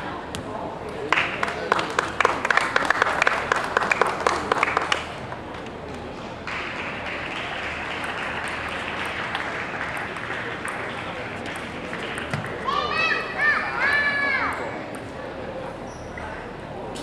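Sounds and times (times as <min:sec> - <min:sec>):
spectators clapping: 0:01.0 - 0:13.2.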